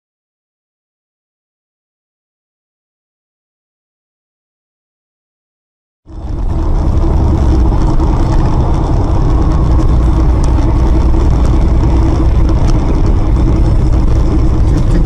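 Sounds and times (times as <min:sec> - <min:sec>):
car engine and road rumble: 0:06.1 - 0:15.0.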